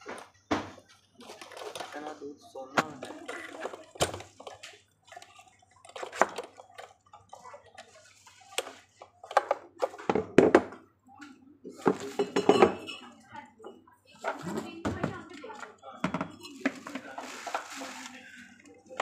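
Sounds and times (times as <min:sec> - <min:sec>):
hard plastic parts knocking: 0:09.3 - 0:10.8.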